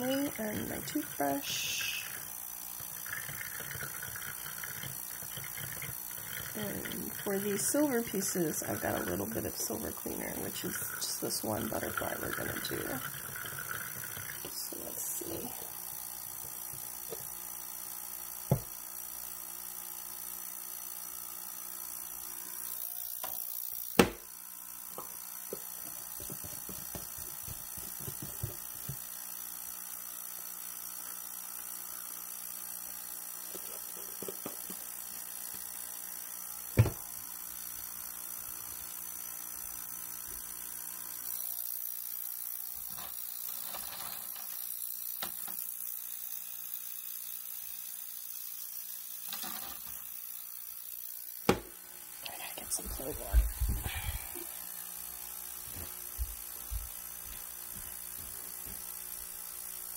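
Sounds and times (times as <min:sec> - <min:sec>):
object knocking on hard surface: 0:18.5 - 0:18.7, 0:24.0 - 0:24.2, 0:36.8 - 0:37.0, 0:51.5 - 0:51.7.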